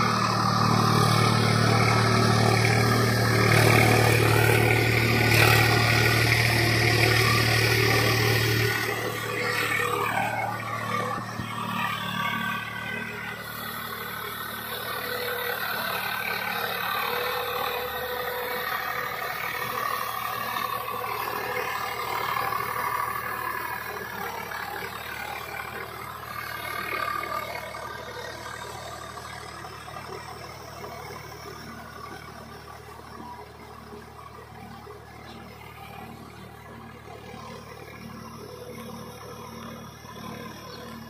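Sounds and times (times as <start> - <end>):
rotavator churning through mud: 0.0 - 14.7
tractor diesel engine under load: 0.0 - 41.0.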